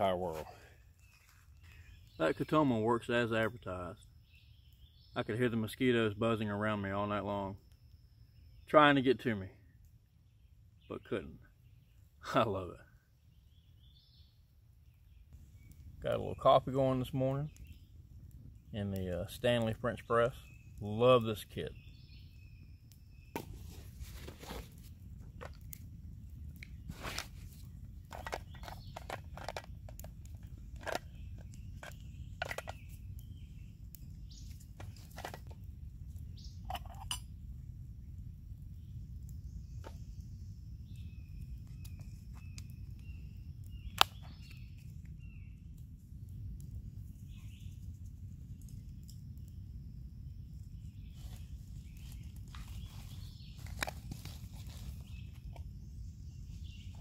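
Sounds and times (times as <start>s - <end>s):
faint bird chirps: 0.0s - 24.6s, 30.1s - 57.0s
cook kit clicks and knocks: 28.1s - 30.1s, 30.8s - 32.8s.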